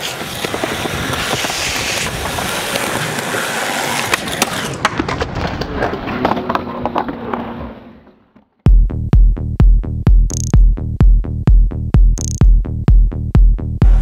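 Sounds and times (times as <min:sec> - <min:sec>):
skateboard clacking on ground: 0:00.0 - 0:08.2
skateboard wheels rolling on concrete: 0:00.0 - 0:08.6.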